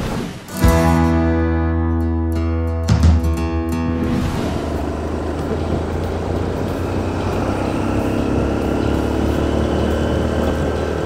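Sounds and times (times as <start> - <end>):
motorcycle engine running: 3.8 - 11.0
road rumble: 3.8 - 11.0.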